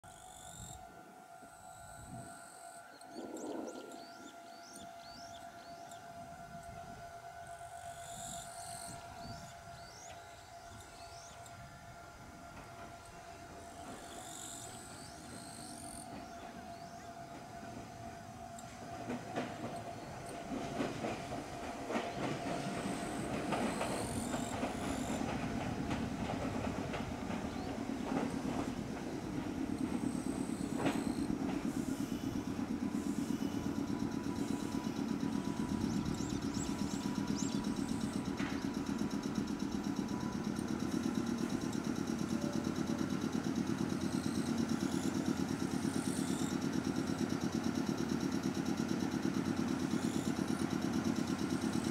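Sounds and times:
electric train running slowly: 0.0 - 51.9
train wheels clicking over rail joints: 18.6 - 51.9.

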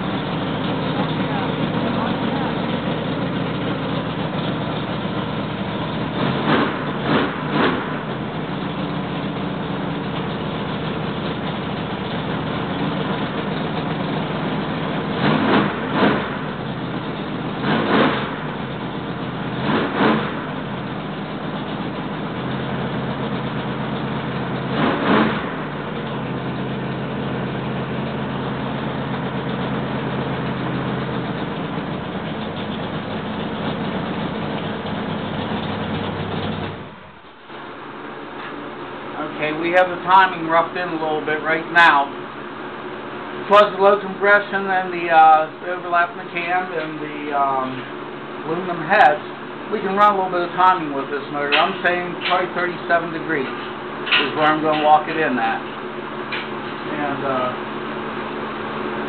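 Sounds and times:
engine revving: 0.0 - 37.0, 43.4 - 59.0
car engine idling: 0.0 - 59.0.

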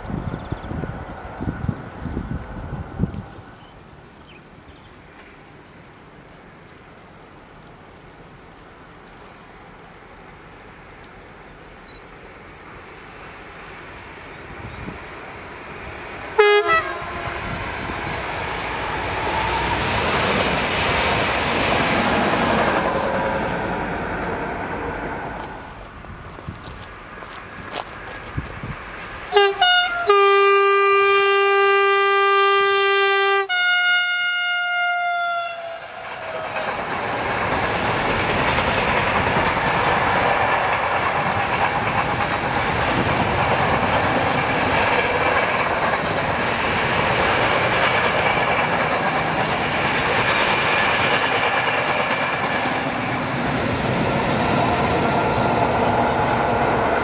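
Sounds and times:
locomotive horn: 16.4 - 17.6, 29.3 - 36.7
train wagons rumbling and clattering: 16.9 - 29.4, 35.0 - 57.0.

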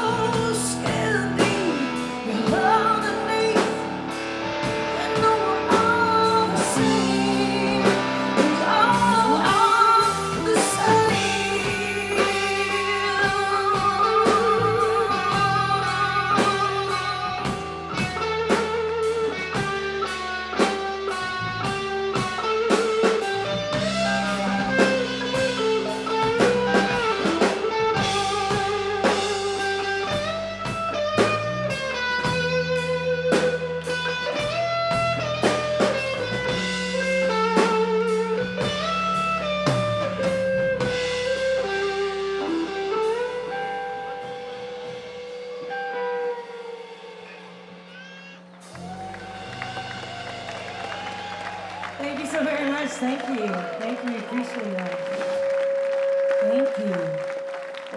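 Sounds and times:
woman singing: 0.0 - 4.0, 4.9 - 17.6
drums: 0.0 - 57.9
electric guitar lead lines: 0.0 - 57.9.

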